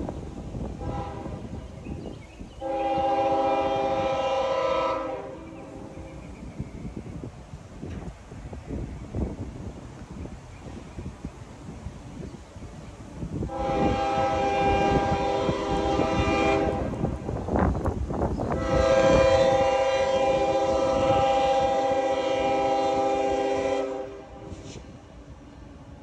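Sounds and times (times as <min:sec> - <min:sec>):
locomotive horn blasts: 0:00.8 - 0:01.6, 0:02.6 - 0:06.0, 0:13.5 - 0:17.1, 0:18.5 - 0:24.6.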